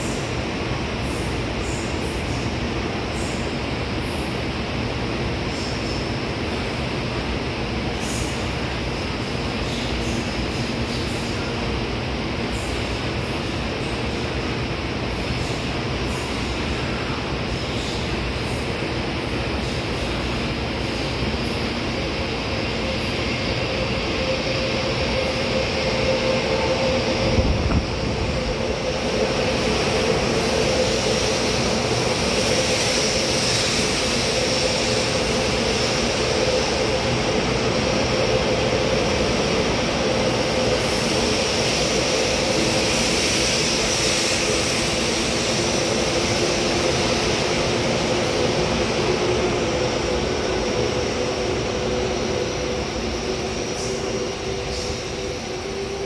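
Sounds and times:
train rushing through station: 0.0s - 56.0s.

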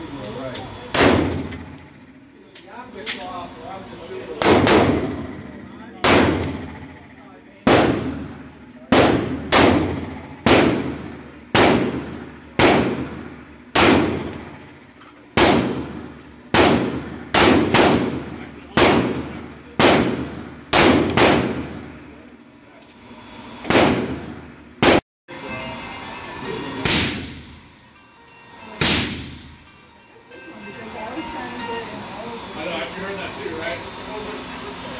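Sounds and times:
gunshots with echo: 0.9s - 1.6s, 4.4s - 5.4s, 6.0s - 14.5s, 15.4s - 21.9s.

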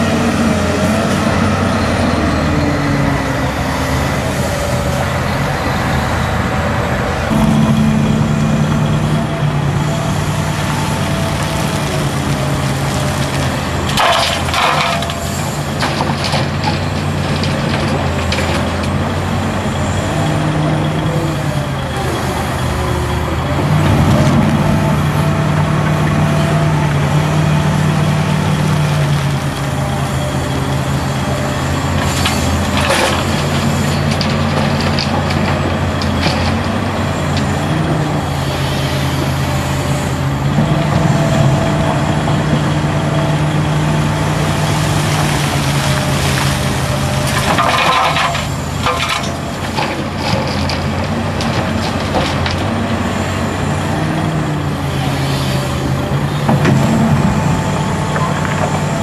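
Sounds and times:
excavator diesel engine working: 0.0s - 59.0s
soil dropping into steel truck bed: 13.4s - 18.8s, 47.2s - 52.7s.

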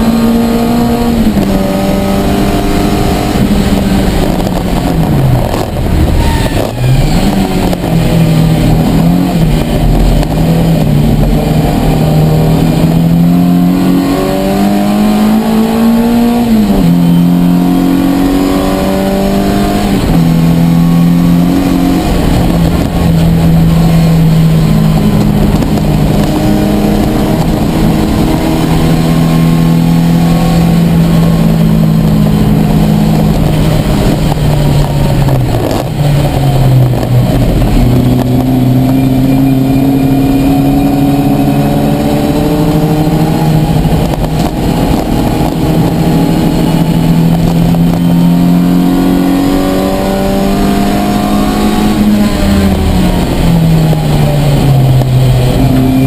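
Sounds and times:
race car engine under load: 0.0s - 56.0s.

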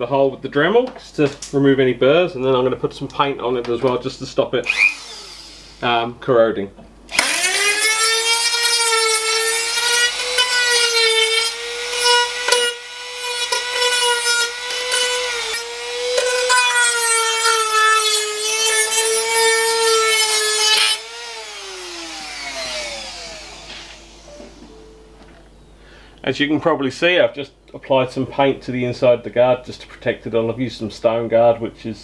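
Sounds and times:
rotary tool grinding metal: 4.7s - 5.8s, 7.1s - 24.3s.

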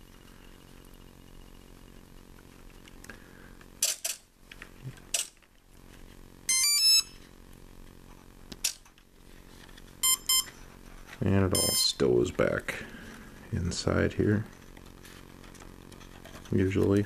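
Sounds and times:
electronic start-up beeps: 6.5s - 7.2s.

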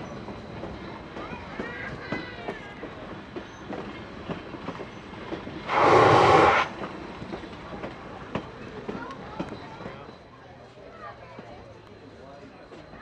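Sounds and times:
train wheels clicking over rails: 0.0s - 10.1s
loud rushing hiss: 5.7s - 6.7s.

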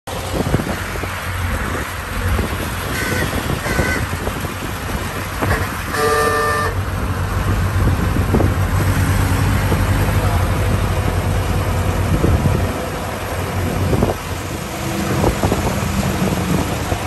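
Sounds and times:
road noise: 0.0s - 17.0s
vintage car engines running: 0.1s - 17.0s
car horn honking: 2.9s - 4.1s, 5.4s - 6.8s, 14.4s - 17.0s.

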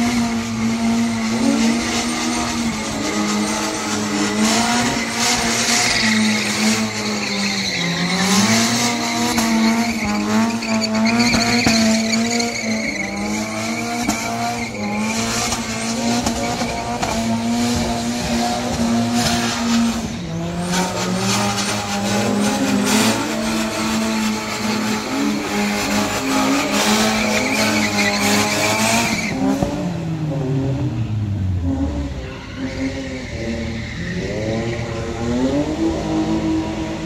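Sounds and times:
car engine revving: 0.0s - 37.0s
tyres squealing: 0.2s - 17.2s.

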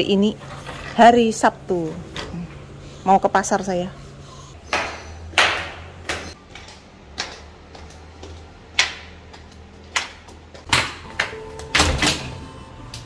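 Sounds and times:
footsteps on concrete stairs: 4.6s - 10.7s.

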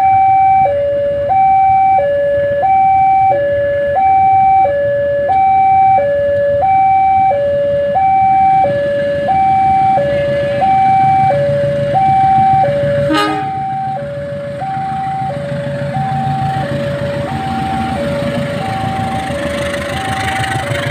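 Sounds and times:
level crossing two-tone alarm: 0.0s - 14.0s, 14.6s - 19.4s
diesel locomotive running: 0.0s - 20.9s.

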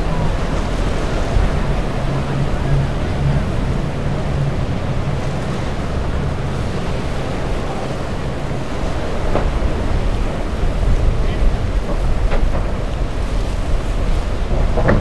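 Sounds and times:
boat engine humming: 0.0s - 15.0s
surf breaking on rocks: 0.0s - 15.0s
wind buffeting microphone: 0.0s - 15.0s.

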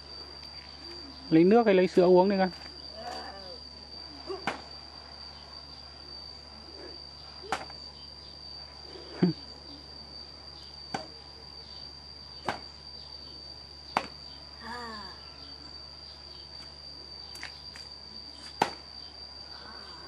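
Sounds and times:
high-pitched insect drone: 0.0s - 20.0s
dull thud: 12.4s - 12.7s, 18.6s - 18.8s.

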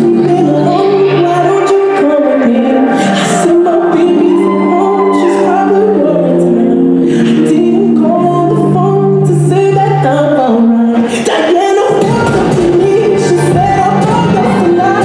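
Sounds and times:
slow pop song with singing: 0.0s - 15.0s.

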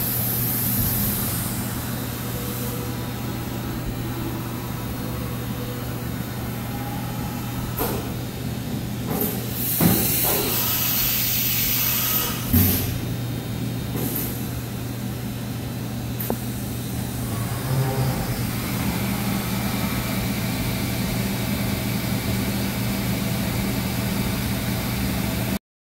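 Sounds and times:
machine low hum: 12.8s - 25.6s.

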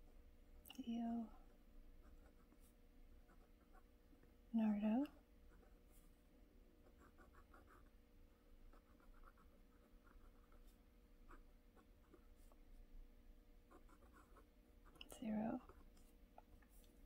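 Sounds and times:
fountain pen scratching on paper: 8.7s - 10.7s, 13.7s - 16.1s.

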